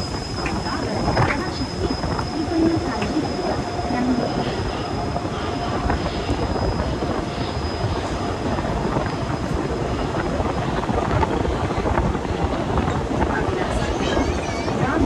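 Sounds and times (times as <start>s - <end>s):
train wheels rumbling on rail: 0.0s - 15.0s.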